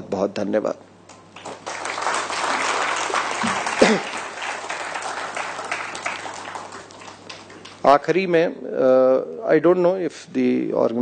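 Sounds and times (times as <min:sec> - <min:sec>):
audience applauding: 0:01.4 - 0:08.0.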